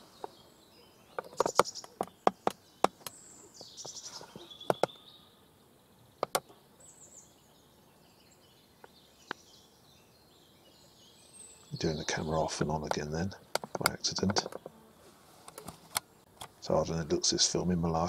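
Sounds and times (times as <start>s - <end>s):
small birds chirping: 0.0s - 18.0s
sharp clicks and taps: 1.2s - 3.2s, 4.7s - 4.9s, 6.2s - 6.5s, 12.8s - 14.7s.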